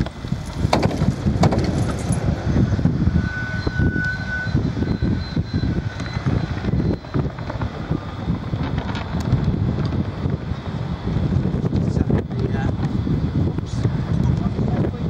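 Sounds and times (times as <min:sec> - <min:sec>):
wind buffeting microphone: 0:00.0 - 0:15.0
sharp knocks: 0:00.7 - 0:02.0.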